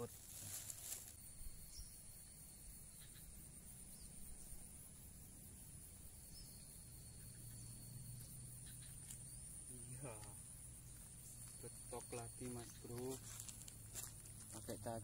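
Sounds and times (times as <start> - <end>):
faint second insect tone: 0.0 - 15.0
high-pitched insect drone: 0.0 - 15.0.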